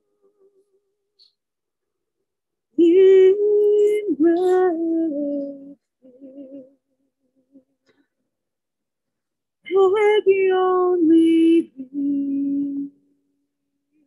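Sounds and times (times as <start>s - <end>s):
person singing slow melody: 2.7s - 8.0s, 9.6s - 14.0s.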